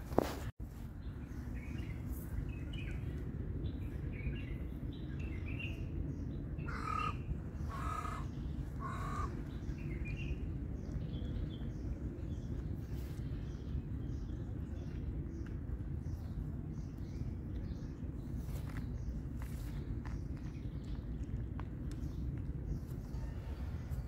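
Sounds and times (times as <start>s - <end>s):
small birds chirping: 0.9s - 24.0s
crow cawing: 6.7s - 9.4s.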